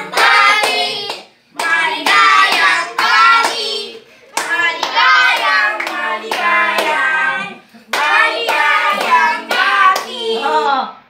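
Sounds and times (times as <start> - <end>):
hands clapping: 0.0 - 3.7, 4.3 - 7.1, 7.9 - 10.2
family singing: 0.0 - 11.0.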